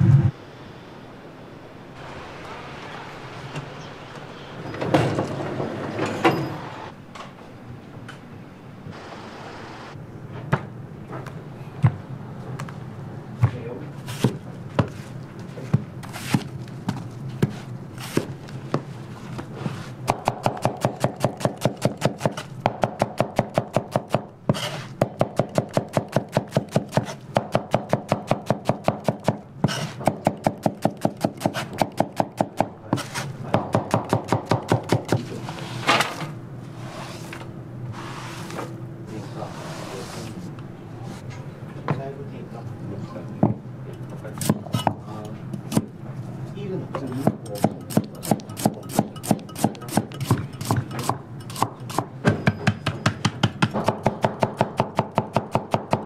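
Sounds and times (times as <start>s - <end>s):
knife clattering: 47.0s - 52.0s
knife chopping on cutting board: 47.2s - 56.0s.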